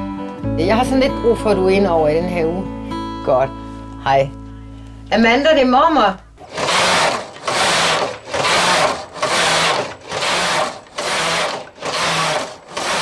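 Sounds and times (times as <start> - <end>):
knitting machine carriage whirring: 6.4 - 13.0.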